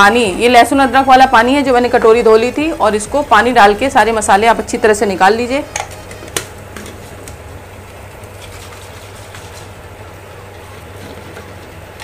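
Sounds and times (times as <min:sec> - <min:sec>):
food sizzling and bubbling in pot: 0:00.0 - 0:12.0.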